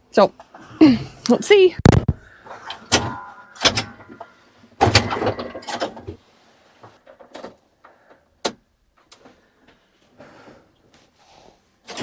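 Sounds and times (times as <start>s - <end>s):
clicks and rattles in tractor cab: 4.8s - 6.2s, 7.0s - 7.6s.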